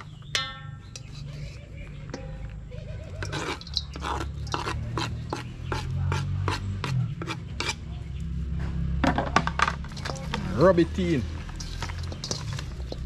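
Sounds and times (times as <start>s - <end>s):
knife scraping cutting board: 3.2s - 7.8s.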